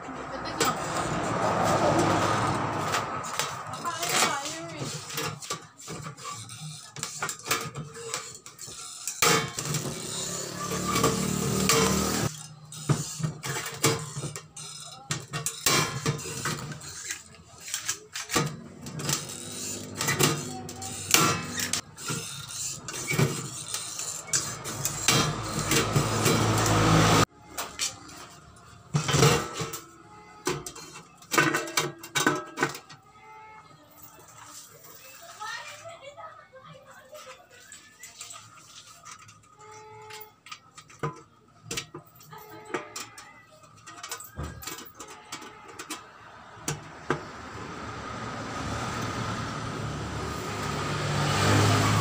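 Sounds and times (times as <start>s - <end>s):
sheet metal clanking: 18.2s - 27.3s.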